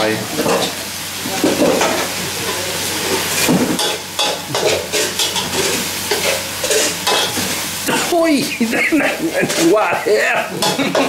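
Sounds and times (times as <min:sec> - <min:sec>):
meat sizzling in a wok: 0:00.0 - 0:11.0
metal spatula scraping a pan: 0:03.0 - 0:07.6, 0:09.3 - 0:09.9.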